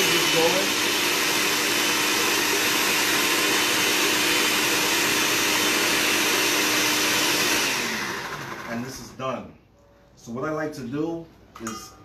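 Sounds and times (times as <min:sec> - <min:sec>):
blender whirring: 0:00.0 - 0:09.2.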